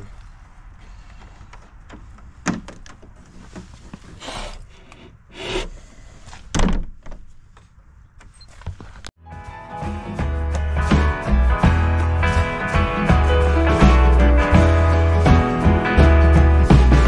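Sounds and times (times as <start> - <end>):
wooden door thudding shut: 6.5 - 7.1.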